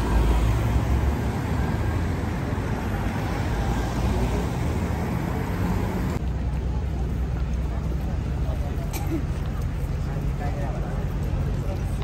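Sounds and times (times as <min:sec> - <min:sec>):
cars driving past: 0:00.0 - 0:06.6.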